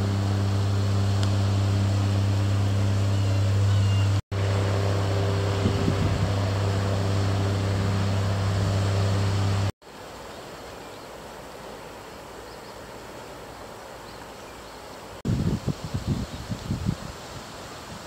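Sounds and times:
motorboat engine droning: 0.0 - 9.8
rustling vegetation: 0.0 - 18.0
wind: 0.0 - 18.0.

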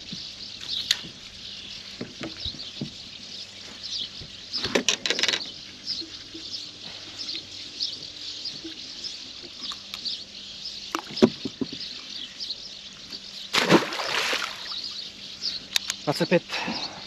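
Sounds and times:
high bird chirps: 0.0 - 17.0
fish splashing into water: 13.5 - 14.8.

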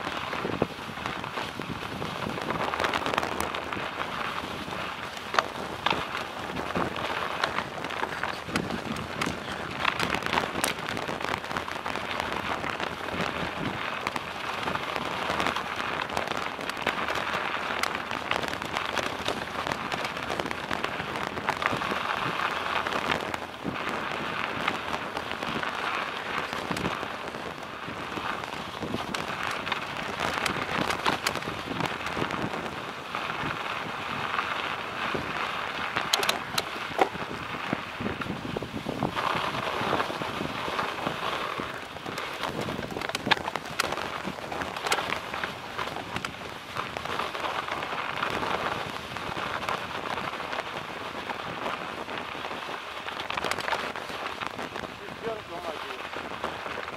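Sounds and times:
bicycle tyres crunching snow: 0.0 - 56.9
small clicks and rattles: 5.0 - 23.4, 35.8 - 37.2, 39.1 - 50.3, 51.2 - 56.9.

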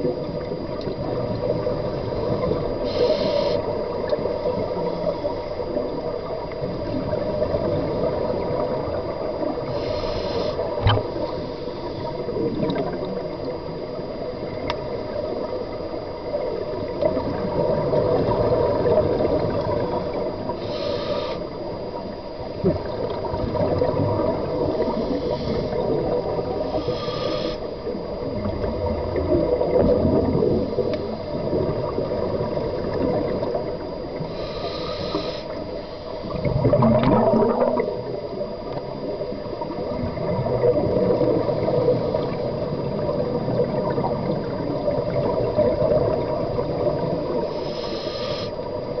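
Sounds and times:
regulator hissing inhalations: 2.8 - 3.7, 9.7 - 12.0, 20.5 - 21.6, 24.8 - 26.0, 26.6 - 27.8, 34.3 - 36.4, 47.4 - 48.7
gurgling exhaled bubbles: 12.0 - 13.6, 16.5 - 20.6, 22.5 - 26.8, 27.8 - 34.3, 36.3 - 47.5.

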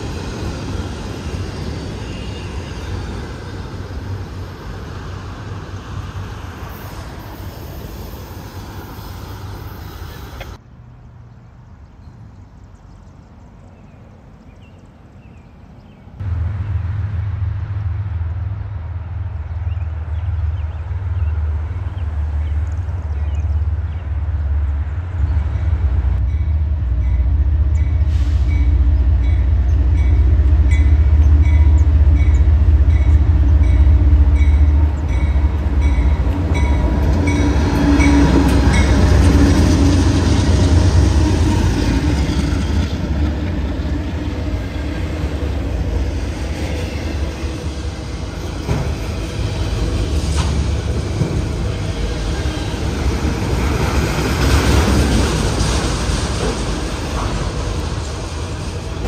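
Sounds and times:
locomotive engines rumbling: 0.0 - 59.0
train wheels clattering on rails: 25.6 - 59.0.

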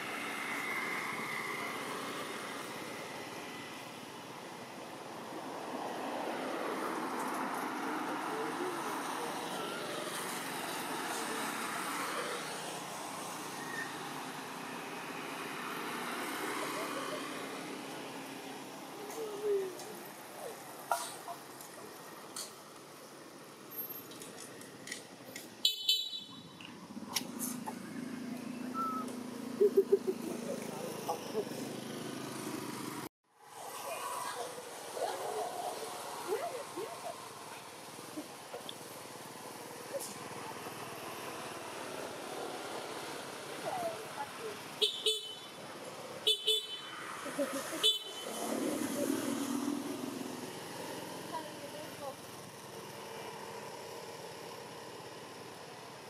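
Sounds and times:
engine hum: 0.0 - 56.0
vehicle horn toots: 25.6 - 26.4, 44.8 - 45.5, 46.3 - 46.9.

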